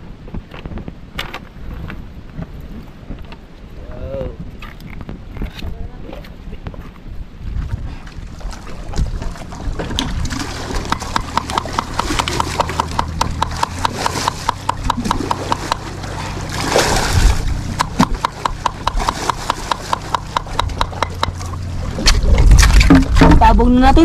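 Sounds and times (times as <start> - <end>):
blade chopping: 10.3 - 16.0, 16.6 - 23.4.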